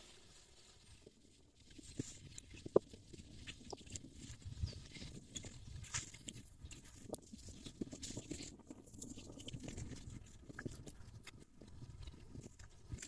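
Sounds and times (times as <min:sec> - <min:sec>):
rustling in grass: 0:00.0 - 0:02.0.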